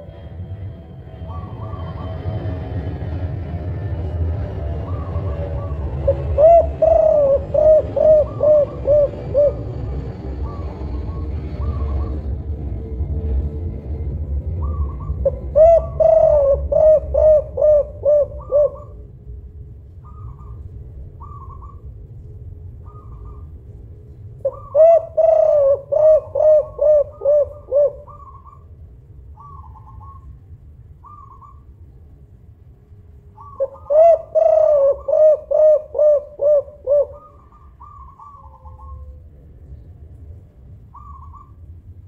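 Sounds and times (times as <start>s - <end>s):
dove cooing: 4.8s - 12.4s, 14.5s - 19.0s, 20.0s - 21.9s, 22.8s - 23.6s, 24.4s - 28.7s, 29.4s - 30.4s, 31.0s - 31.7s, 33.4s - 39.4s, 40.9s - 41.6s.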